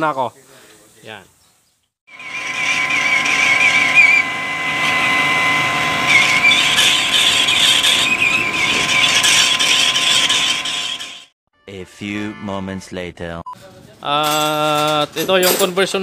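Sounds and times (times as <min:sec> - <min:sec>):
cutting tool squealing: 0:02.1 - 0:11.3
metal lathe whining: 0:02.1 - 0:11.3.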